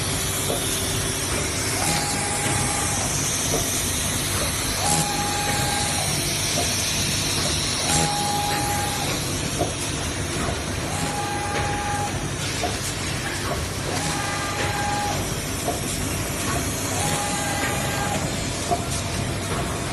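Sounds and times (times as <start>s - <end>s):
machine tone: 0.0s - 9.6s, 10.8s - 12.5s, 13.8s - 15.6s, 16.8s - 18.5s
machine hiss and clatter: 0.0s - 19.9s.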